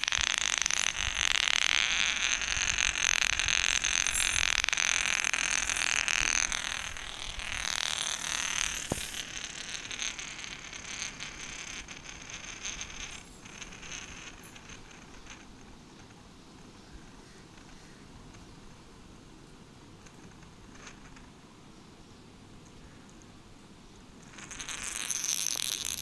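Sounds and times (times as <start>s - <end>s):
spinning top whirring on tiles: 0.0s - 16.2s, 20.0s - 21.3s, 24.2s - 26.0s.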